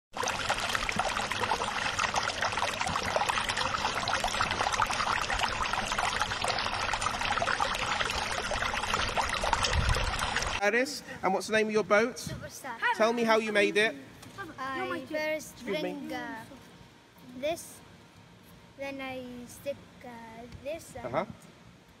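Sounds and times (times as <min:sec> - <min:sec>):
water trickling and lapping: 0:00.1 - 0:10.6.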